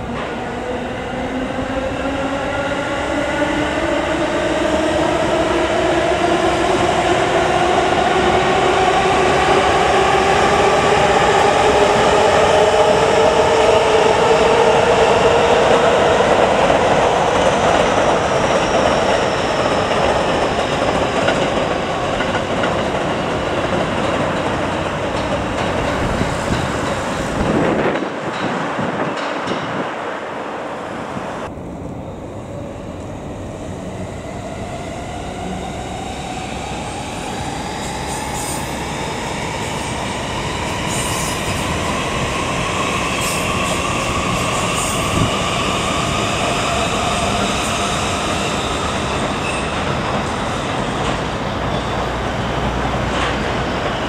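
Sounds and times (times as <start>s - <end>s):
train wheels clattering on rails: 15.6s - 30.0s, 43.2s - 54.0s.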